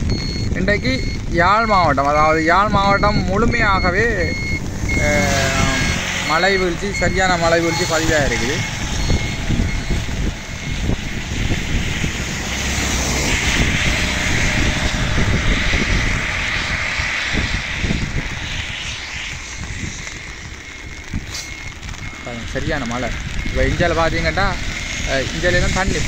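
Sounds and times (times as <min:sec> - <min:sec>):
wind buffeting microphone: 0:00.0 - 0:26.0
tyre hiss on wet road: 0:15.8 - 0:23.4.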